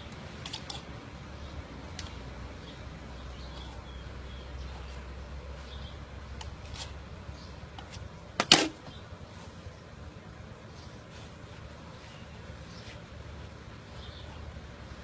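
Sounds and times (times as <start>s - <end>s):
knife scraping coconut husk: 6.4s - 7.0s.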